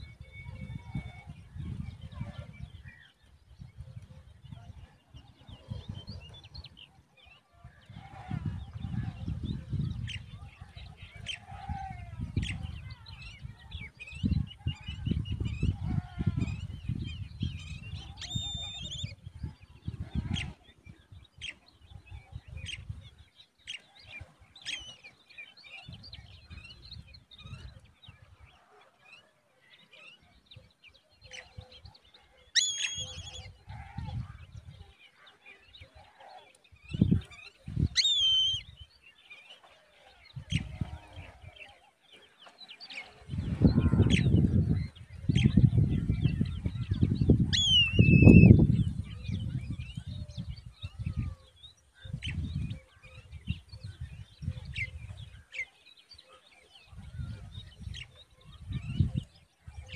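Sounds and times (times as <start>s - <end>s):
high bird chirps and calls: 32.5s - 33.6s, 36.9s - 39.0s, 43.6s - 52.8s
low rumbling in gusts: 43.3s - 51.4s.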